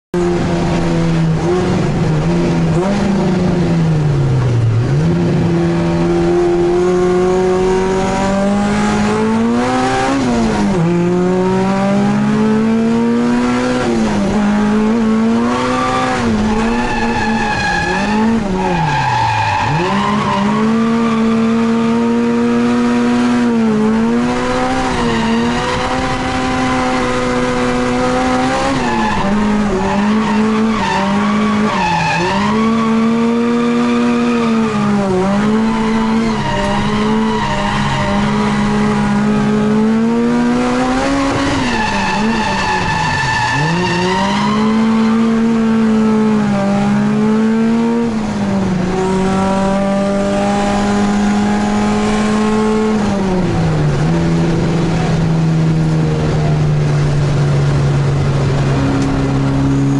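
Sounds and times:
car engine revving high: 0:00.2 - 0:59.9.

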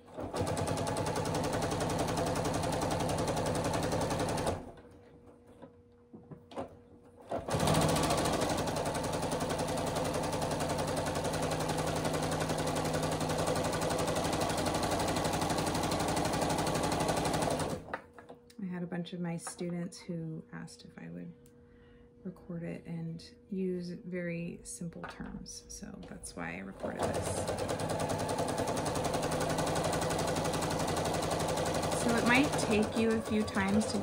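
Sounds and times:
sewing machine stitching: 0:00.0 - 0:04.8, 0:07.2 - 0:17.9, 0:26.7 - 0:34.0.

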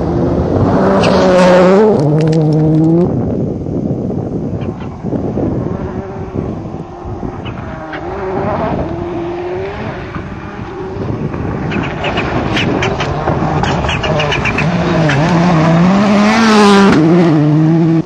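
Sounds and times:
rally car engine revving: 0:00.0 - 0:03.2, 0:04.9 - 0:18.0.

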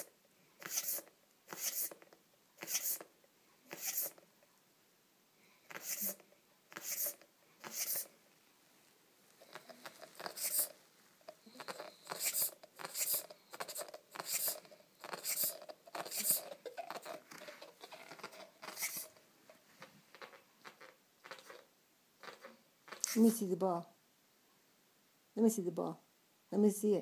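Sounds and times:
dog chewing on a ball: 0:09.4 - 0:23.0.

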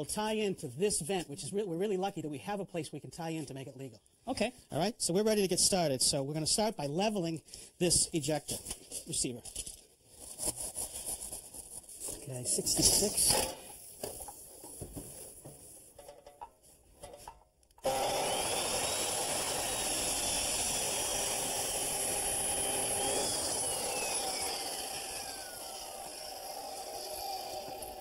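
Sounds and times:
chop saw cutting plastic pipe: 0:17.8 - 0:28.0.

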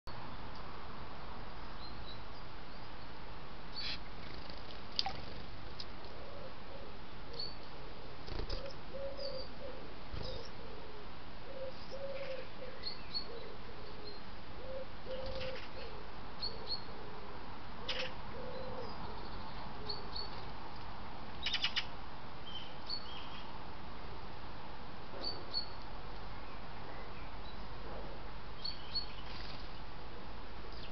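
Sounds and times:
bird low call: 0:08.3 - 0:17.2.

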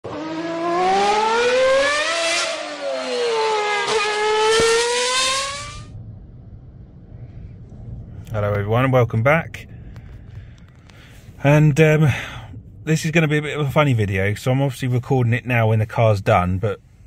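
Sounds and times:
car engine revving: 0:00.0 - 0:06.0.

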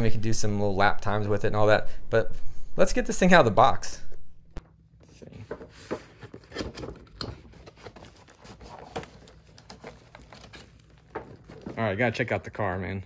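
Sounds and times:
cardboard and plastic packaging rustling: 0:05.0 - 0:12.8.

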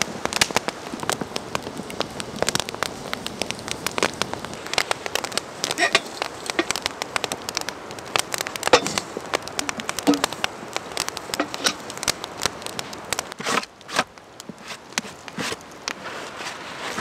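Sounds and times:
campfire crackling and popping: 0:00.0 - 0:17.0
loud rustles: 0:12.8 - 0:17.0.

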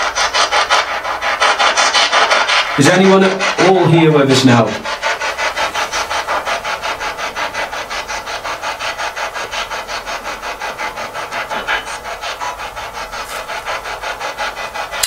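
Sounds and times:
choppy radio static: 0:10.9 - 0:13.6.

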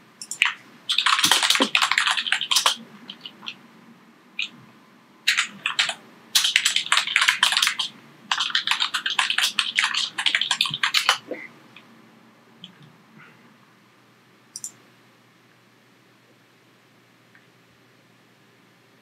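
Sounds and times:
computer keyboard typing: 0:00.2 - 0:03.6, 0:05.3 - 0:11.2, 0:14.6 - 0:14.8.

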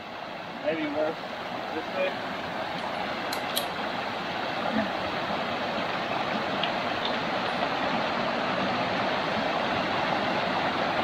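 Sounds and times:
creek rapids rushing over rocks: 0:00.0 - 0:11.0.

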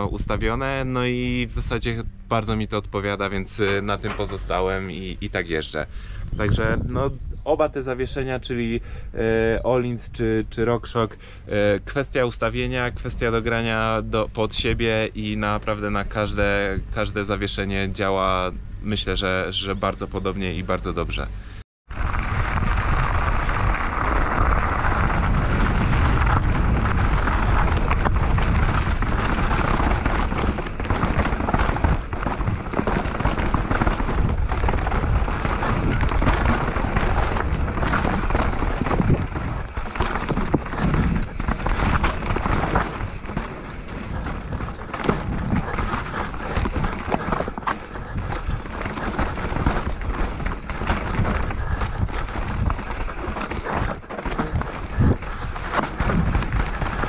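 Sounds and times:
bike tyres rattling over stones: 0:03.3 - 0:05.1, 0:21.9 - 0:57.0
wind rush on microphone: 0:05.9 - 0:07.8, 0:21.9 - 0:57.0.

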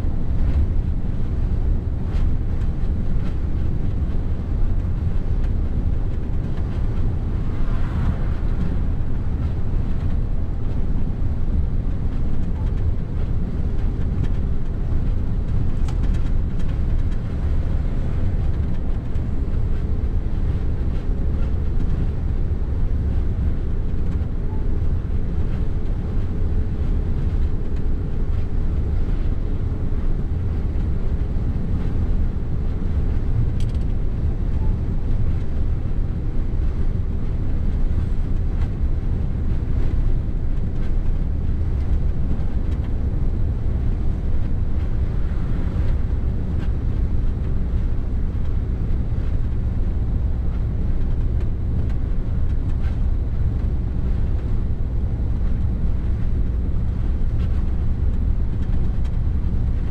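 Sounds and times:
engine and tyre drone: 0:00.0 - 0:59.9.

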